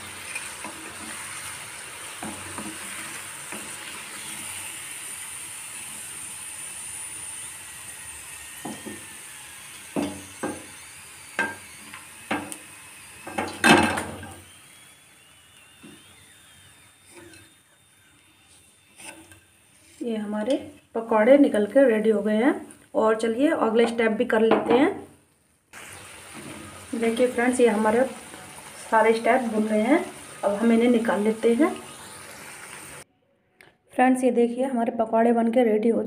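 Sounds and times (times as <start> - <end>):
frying in oil sizzling: 0.0 - 24.9, 25.7 - 33.0
wooden spatula scraping pan: 0.1 - 1.5, 18.5 - 20.9.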